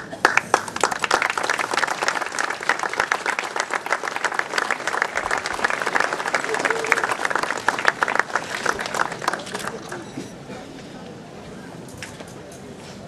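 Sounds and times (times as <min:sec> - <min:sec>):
people clapping: 0:00.0 - 0:10.2.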